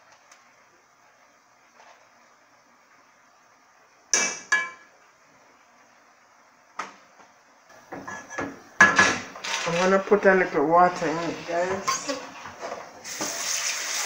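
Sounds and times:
metal cookware clanking: 0:07.9 - 0:10.1, 0:10.8 - 0:13.3.

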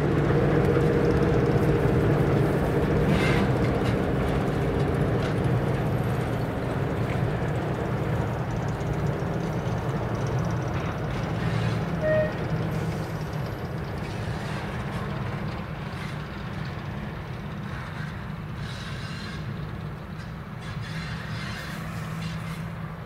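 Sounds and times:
diesel locomotive engine humming: 0:00.0 - 0:23.0
brief high tone: 0:12.0 - 0:12.4.

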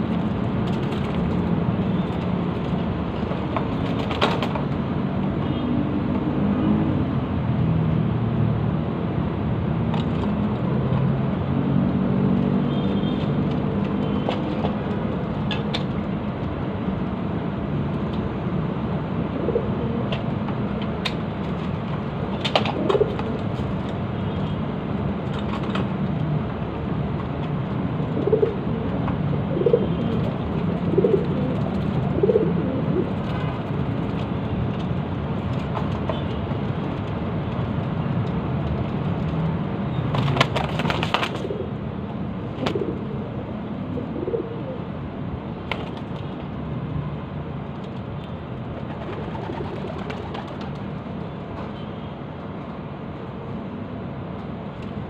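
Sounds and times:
pigeons cooing: 0:28.2 - 0:33.2, 0:42.6 - 0:44.9.

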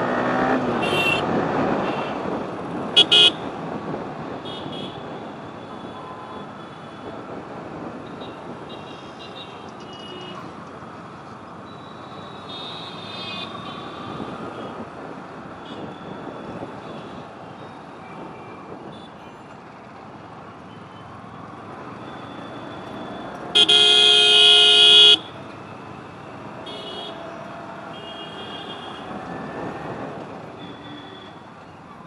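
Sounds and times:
traffic and road noise: 0:00.0 - 0:32.0
vehicle horn: 0:00.8 - 0:01.2, 0:03.0 - 0:03.4, 0:23.5 - 0:25.3, 0:26.6 - 0:27.2
faint horns tooting: 0:22.3 - 0:25.3.

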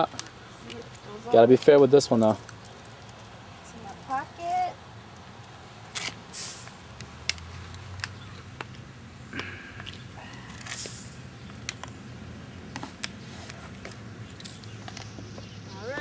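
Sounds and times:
carbonation gas hiss: 0:06.3 - 0:06.8, 0:10.7 - 0:11.2.

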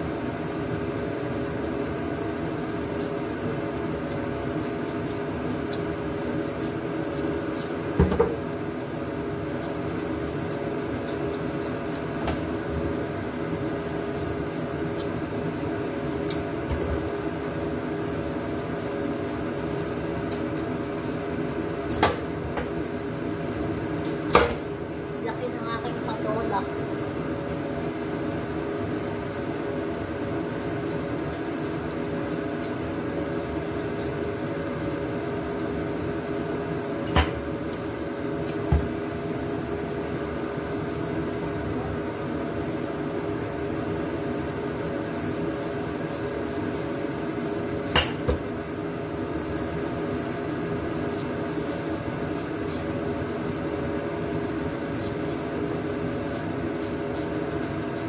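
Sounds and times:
steady machine hum: 0:00.0 - 0:58.0.

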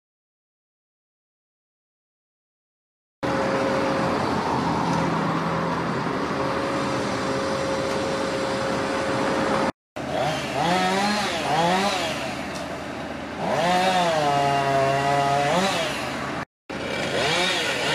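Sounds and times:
chainsaw revving: 0:10.0 - 0:12.5, 0:13.4 - 0:17.9.

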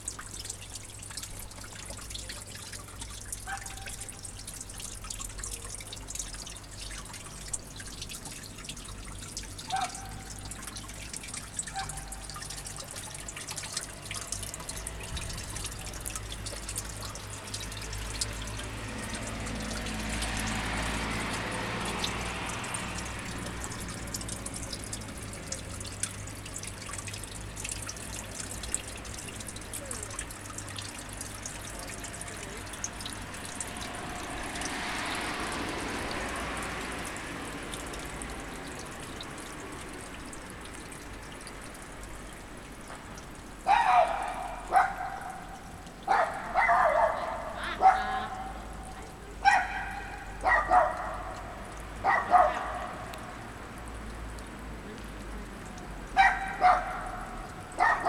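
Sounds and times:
running water trickling: 0:00.0 - 0:58.0
dog barking: 0:03.4 - 0:04.0, 0:09.7 - 0:10.3, 0:43.7 - 0:45.5, 0:46.1 - 0:48.6, 0:49.4 - 0:53.1, 0:56.2 - 0:58.0.

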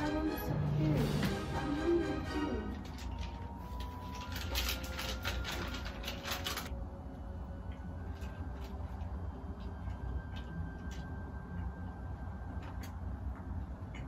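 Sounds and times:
wrapper crinkling and rustling: 0:02.6 - 0:06.8.

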